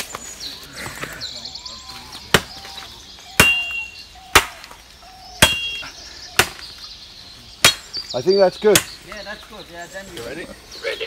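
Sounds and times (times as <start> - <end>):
machete chopping tree trunk: 2.2 - 4.8, 5.4 - 5.8, 6.4 - 6.7, 7.6 - 8.0, 8.7 - 9.2.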